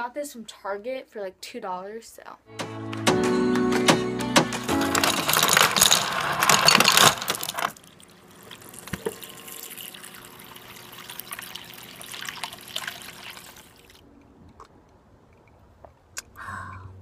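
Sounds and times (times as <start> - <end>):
ice cubes clattering into bowl: 4.6 - 9.9
water running onto ice: 4.8 - 14.0.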